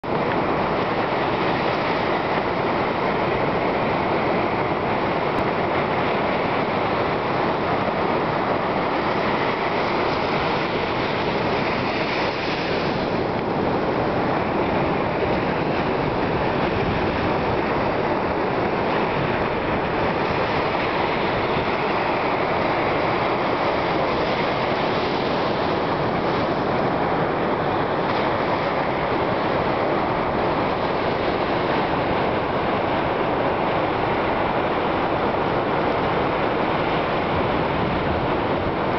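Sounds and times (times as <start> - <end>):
ocean surf on beach: 0.0 - 38.9.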